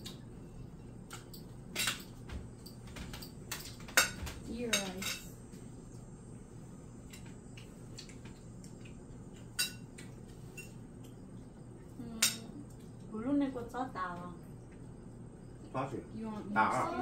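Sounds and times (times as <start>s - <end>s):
metal utensils clinking on dishes: 1.3s - 5.3s.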